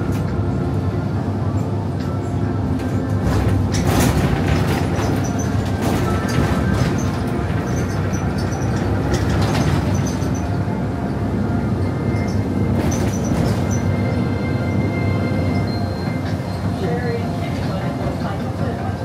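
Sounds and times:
bus engine and road hum: 0:00.0 - 0:19.0
knocks and rattles: 0:02.8 - 0:10.6, 0:12.2 - 0:13.9.

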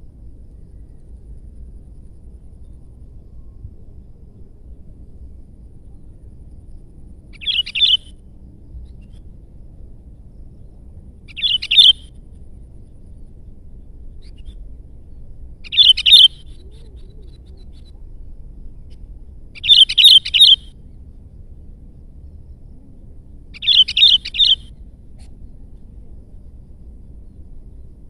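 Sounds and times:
bulbul singing: 0:07.4 - 0:08.1, 0:11.3 - 0:12.1, 0:15.6 - 0:18.0, 0:19.6 - 0:20.8, 0:23.6 - 0:25.3.

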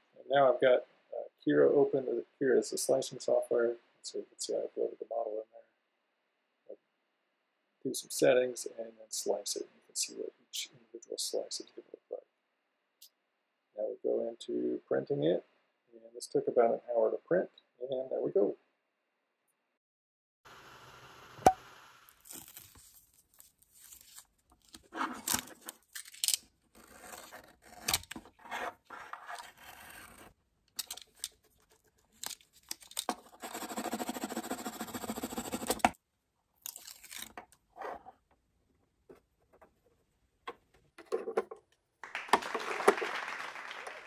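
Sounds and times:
plastic part clicking: 0:30.7 - 0:31.3.

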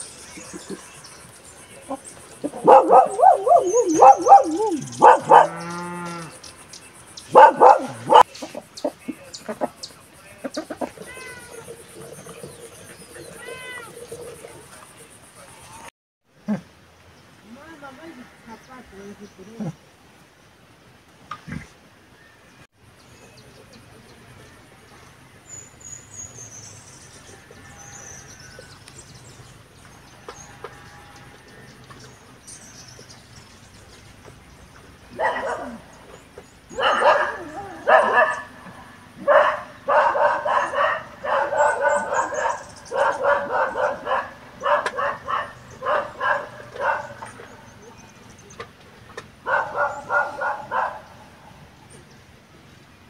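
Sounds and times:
farm animals calling: 0:00.0 - 0:06.5, 0:07.2 - 0:15.9, 0:27.0 - 0:28.9, 0:30.0 - 0:32.4, 0:35.1 - 0:48.7, 0:49.4 - 0:51.6
birds chirping: 0:00.0 - 0:15.9, 0:22.2 - 0:53.0.

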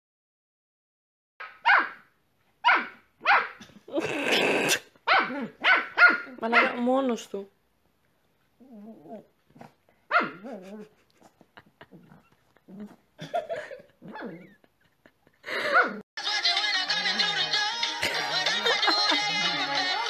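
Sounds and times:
puppy yelping: 0:01.4 - 0:02.0, 0:02.6 - 0:03.6, 0:05.0 - 0:06.8, 0:10.1 - 0:10.8, 0:14.0 - 0:14.7
puppy growling and barking: 0:05.0 - 0:06.8, 0:08.6 - 0:11.0, 0:14.0 - 0:14.6
music: 0:16.2 - 0:20.0.

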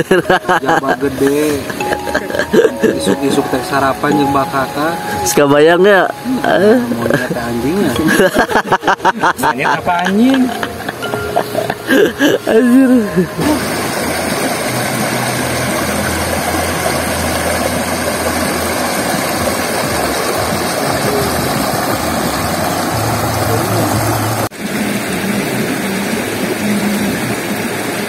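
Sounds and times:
rocky stream rushing: 0:00.0 - 0:28.0
low hum: 0:10.1 - 0:27.5.

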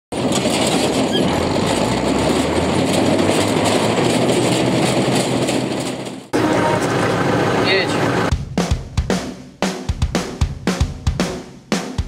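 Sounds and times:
mechanical clatter: 0:00.1 - 0:06.4
low engine hum: 0:00.2 - 0:08.3.

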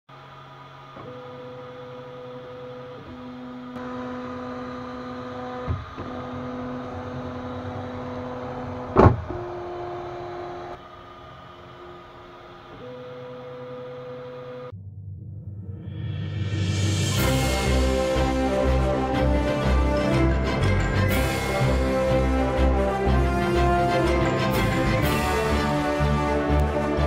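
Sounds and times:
stepper motors whining: 0:00.8 - 0:14.7
fan hum: 0:02.9 - 0:14.8.

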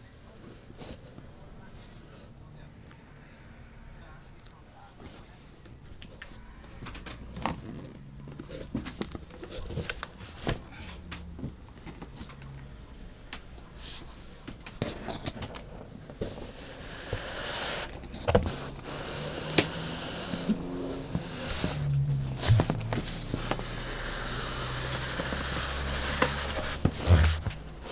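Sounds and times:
rustling scrape on cardboard: 0:13.7 - 0:27.9
knocks and scuffs on cardboard: 0:20.4 - 0:23.7, 0:24.6 - 0:27.9.

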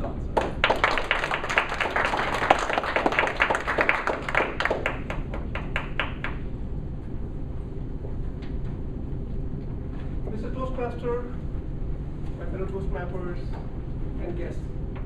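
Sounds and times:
small group clapping: 0:00.0 - 0:06.4.

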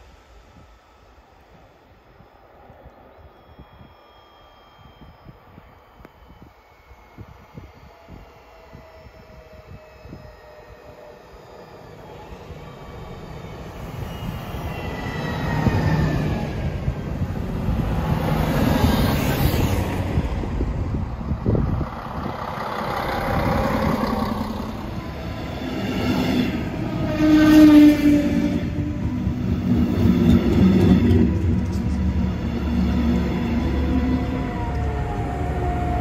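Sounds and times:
diesel railcar passing: 0:00.0 - 0:36.0
train running past: 0:00.0 - 0:36.0
brief pitched tone: 0:03.0 - 0:07.2.

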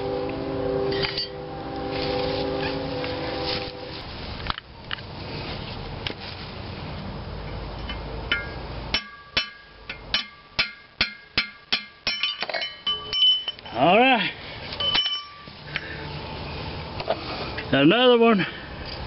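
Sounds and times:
metal-on-metal clanks: 0:00.9 - 0:01.4, 0:07.8 - 0:13.8, 0:14.8 - 0:15.6.

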